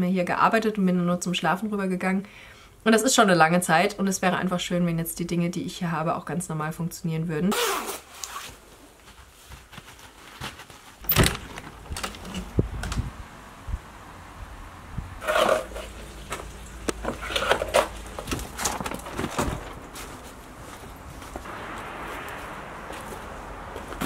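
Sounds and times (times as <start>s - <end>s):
dry leaves rustling underfoot: 15.3s - 24.0s
low steady rumble: 19.6s - 24.0s.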